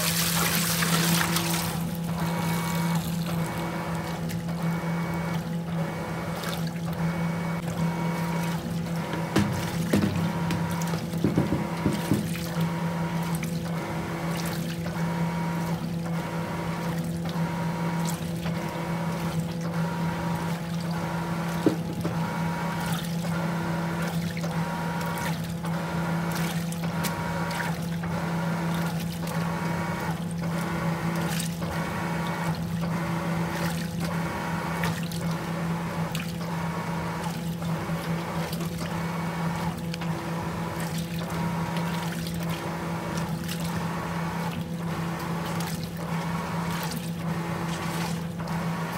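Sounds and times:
washing machine motor hum: 0.0s - 48.9s
water sloshing: 0.0s - 48.9s.

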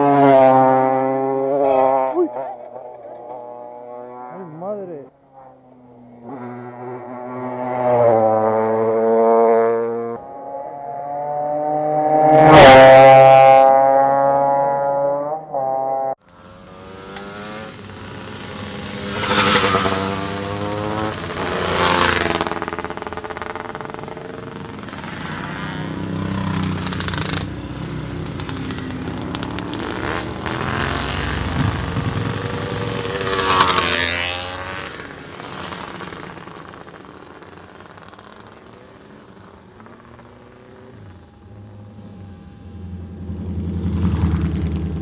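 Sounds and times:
motorcycles passing at high revs: 0.0s - 45.0s
distant engine drone: 13.2s - 45.0s.

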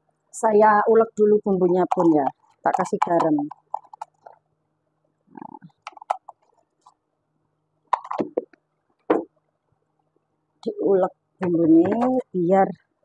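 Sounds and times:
plastic container rattling: 5.7s - 6.6s
plastic container clicks and knocks: 5.8s - 6.4s, 7.9s - 9.3s.

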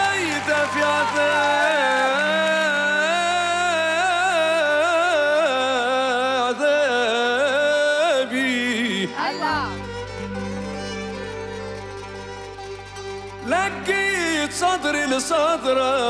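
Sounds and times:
man singing ornamented vocal line: 0.0s - 9.8s, 13.4s - 16.0s
held accompaniment note: 9.2s - 15.5s.

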